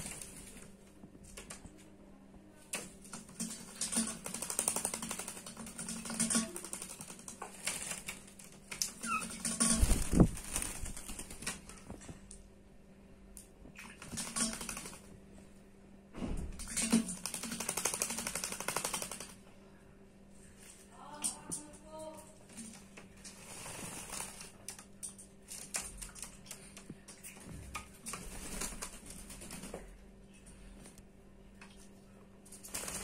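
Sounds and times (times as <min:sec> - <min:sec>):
bird wings splashing water: 0:03.1 - 0:08.2, 0:13.7 - 0:15.0.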